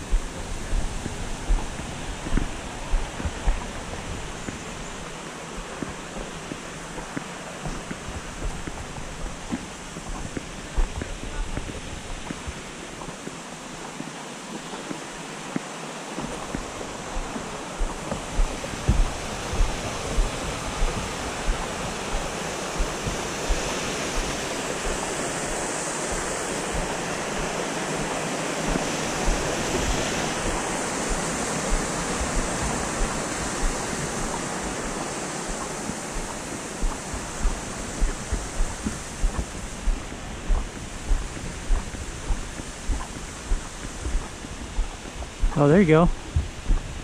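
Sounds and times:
footsteps on wooden boardwalk: 0.0s - 47.0s
waterfall rushing: 0.0s - 47.0s.

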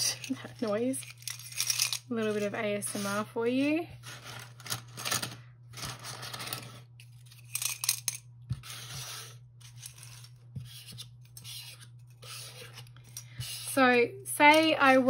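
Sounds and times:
plastic charms clicking and clattering: 0.0s - 2.4s, 4.3s - 8.2s.

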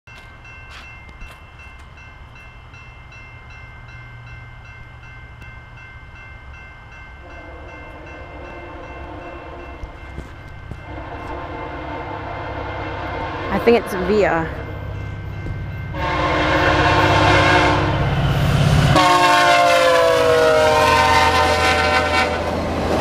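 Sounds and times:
crossing warning bell ringing: 0.1s - 23.0s
train horn blasts: 7.2s - 10.0s, 10.8s - 14.4s, 15.9s - 18.1s, 18.8s - 22.6s.

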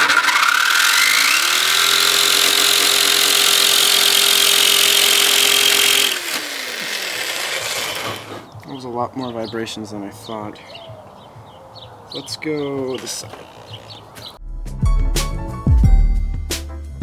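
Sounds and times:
jigsaw cutting sheet metal: 0.0s - 8.5s.

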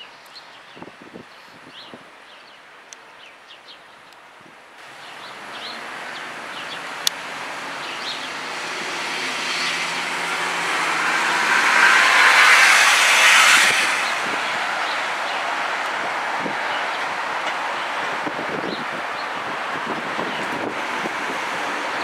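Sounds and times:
vehicle passing: 4.9s - 22.0s.

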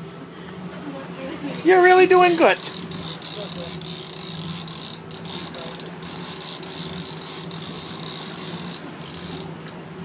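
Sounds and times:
boat engine low hum: 0.0s - 10.0s
fishing reel gears clicking: 2.3s - 9.5s.

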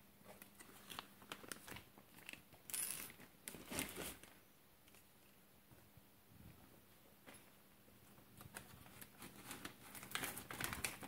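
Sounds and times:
plastic packaging crinkling: 0.5s - 4.3s, 8.4s - 11.0s.

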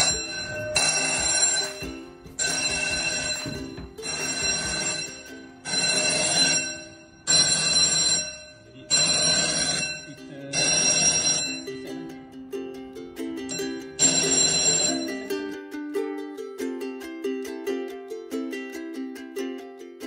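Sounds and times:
fire alarm bell ringing: 0.0s - 12.1s, 13.4s - 15.3s.

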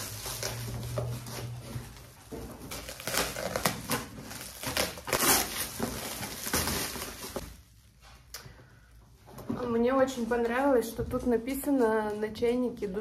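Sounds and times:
plastic wrap crinkling and ripping: 0.0s - 7.9s.

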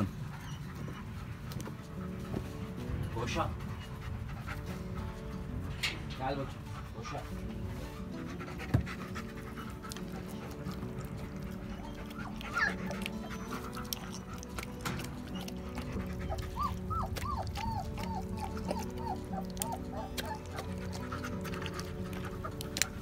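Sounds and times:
background music: 0.0s - 23.0s
dog chewing wet food: 7.5s - 23.0s.

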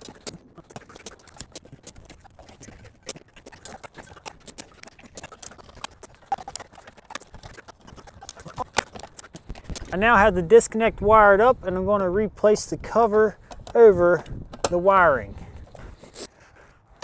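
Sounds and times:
wires clicking and rustling in metal box: 0.0s - 10.7s.

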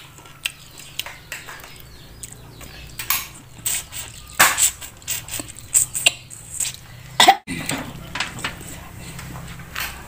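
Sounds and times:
crunchy chewing of seeds: 0.0s - 10.0s
short cough: 7.2s - 7.6s.

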